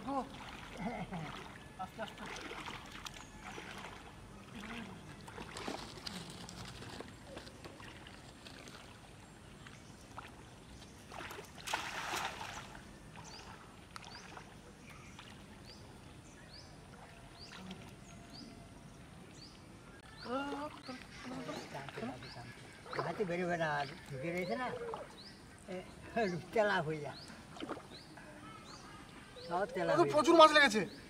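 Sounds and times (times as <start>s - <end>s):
cast net splashing on water: 0.0s - 9.1s, 11.1s - 14.6s, 27.5s - 28.0s
feet sloshing through shallow water: 0.0s - 31.0s.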